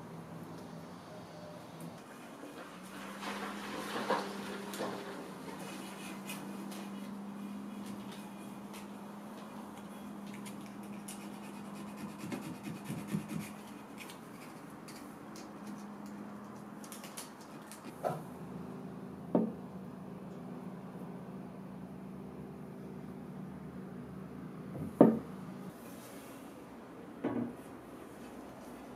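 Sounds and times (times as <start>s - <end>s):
sandpaper scratching and rubbing: 10.4s - 14.7s.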